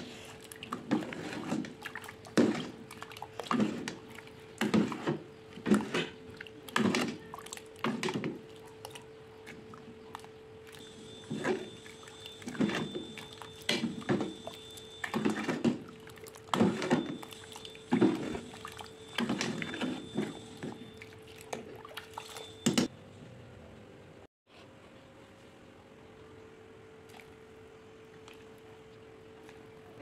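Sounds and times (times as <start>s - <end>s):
ladle splashing liquid in metal pot: 0.3s - 22.8s.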